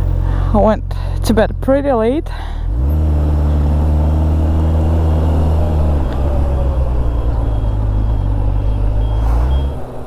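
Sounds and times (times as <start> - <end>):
motorcycle pulling away: 2.7 - 10.0.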